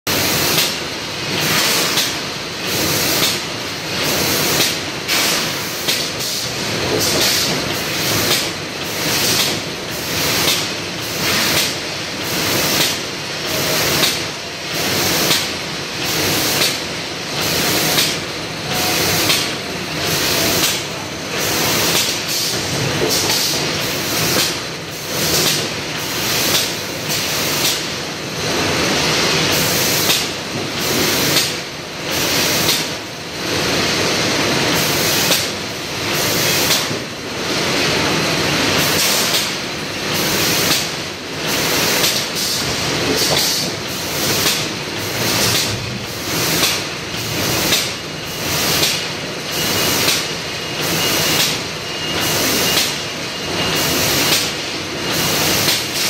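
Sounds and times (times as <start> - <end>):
short bursts of air hiss: 4.0 - 14.2
steady mechanical din: 43.0 - 49.0.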